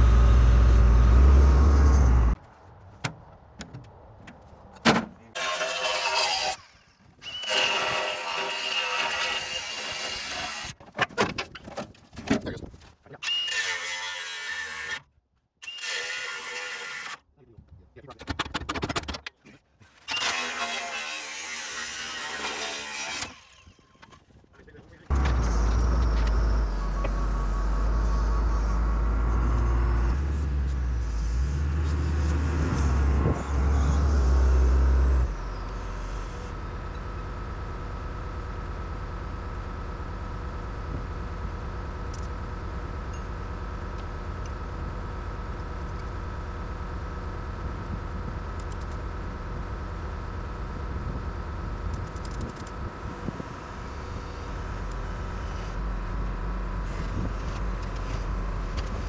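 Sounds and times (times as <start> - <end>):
engine rumbling: 0.0 - 5.4, 24.6 - 59.0.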